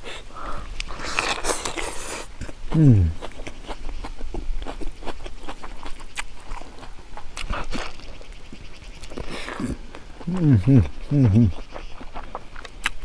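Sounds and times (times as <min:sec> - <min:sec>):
person chewing wetly: 0:00.5 - 0:13.0.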